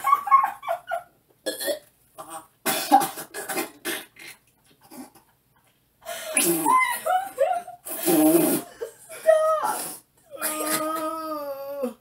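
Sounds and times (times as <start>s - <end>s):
man retching and gagging: 1.4s - 5.4s, 6.3s - 6.8s, 7.9s - 8.7s.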